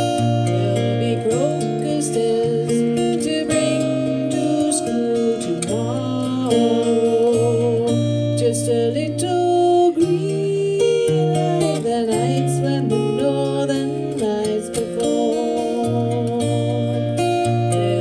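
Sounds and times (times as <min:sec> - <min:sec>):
strummed acoustic guitar: 0:00.0 - 0:18.0
woman singing: 0:00.0 - 0:18.0.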